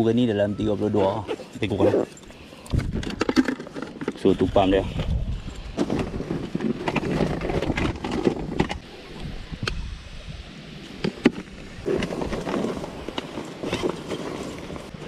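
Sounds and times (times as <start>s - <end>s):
nylon bag rustling: 11.8s - 15.0s.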